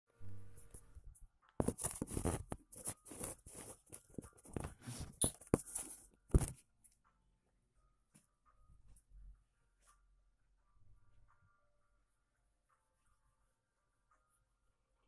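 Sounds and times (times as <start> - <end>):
phone rubbing on skin and clothing: 1.6 - 6.1.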